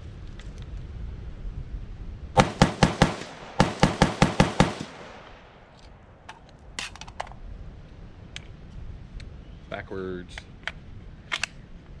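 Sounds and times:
rifle shots fired rapidly: 2.4s - 5.5s.

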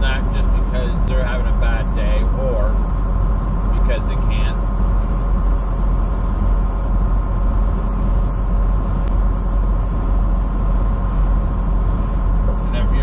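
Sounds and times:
truck engine and road drone: 0.0s - 13.0s.

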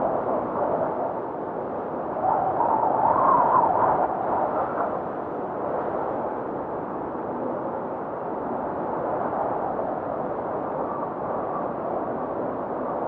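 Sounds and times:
steady rushing wind: 0.0s - 13.0s.

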